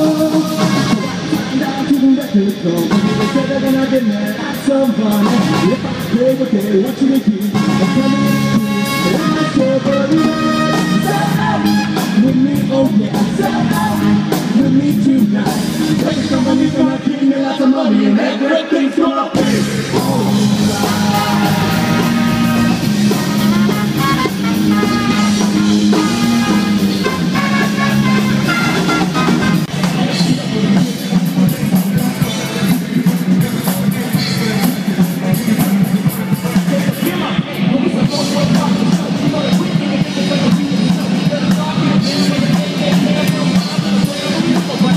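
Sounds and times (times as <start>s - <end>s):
horn band playing: 0.0s - 6.6s, 7.4s - 16.9s, 19.4s - 33.0s
rock band with vocals: 0.0s - 44.9s.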